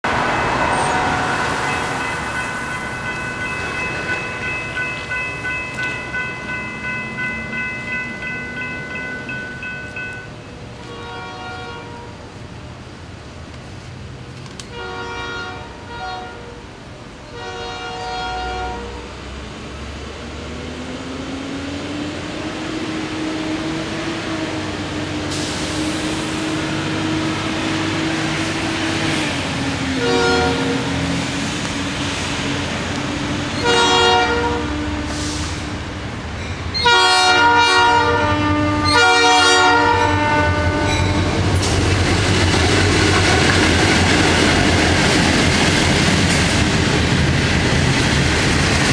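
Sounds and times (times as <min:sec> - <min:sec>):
locomotive engines rumbling: 0:00.0 - 0:48.9
train rolling: 0:00.0 - 0:48.9
locomotive air horn blasts: 0:00.7 - 0:02.1, 0:10.8 - 0:12.2, 0:14.7 - 0:16.6, 0:17.2 - 0:19.2, 0:30.0 - 0:31.0, 0:33.6 - 0:35.7, 0:36.8 - 0:41.3.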